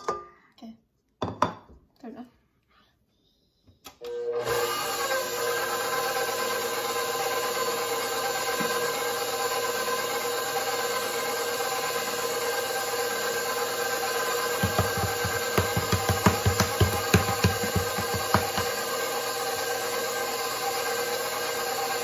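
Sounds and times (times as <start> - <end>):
stand mixer motor whine: 4.0 - 22.0
whisk beating in metal bowl: 14.6 - 19.0.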